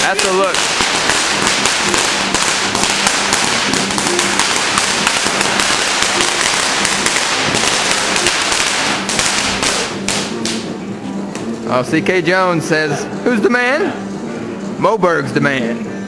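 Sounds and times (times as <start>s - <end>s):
fireworks crackling: 0.0s - 10.7s.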